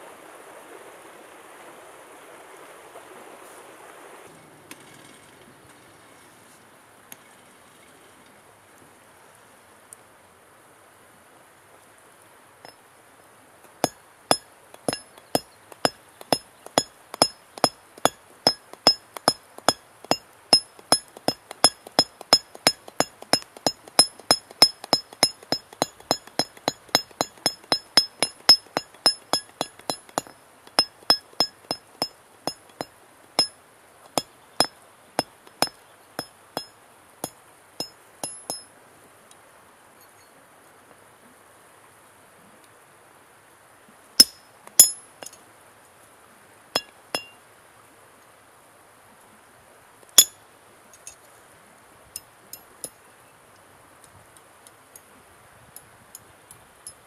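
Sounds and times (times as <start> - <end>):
hammer striking steel: 13.7 - 33.5, 34.1 - 36.7, 37.8 - 38.6, 44.2 - 45.4, 46.8 - 47.3.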